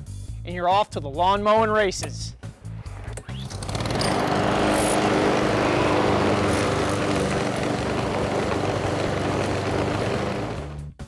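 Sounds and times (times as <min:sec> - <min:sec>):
lawn mower engine running: 0:03.5 - 0:10.9.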